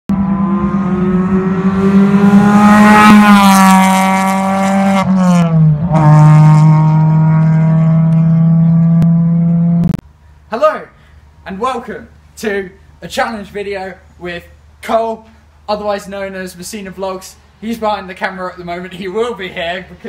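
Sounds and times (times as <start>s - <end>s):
racing car engine revving: 0.1s - 10.0s.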